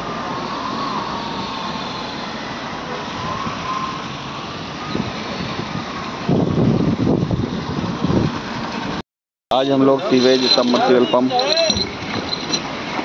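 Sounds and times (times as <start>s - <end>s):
cars driving past: 0.0s - 9.0s
faint wavering whine: 10.0s - 12.7s.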